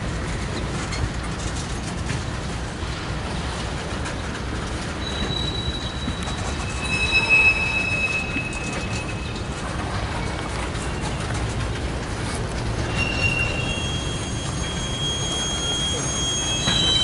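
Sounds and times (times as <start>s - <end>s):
train rumble: 0.0s - 17.0s
train wheels squealing: 4.1s - 17.0s.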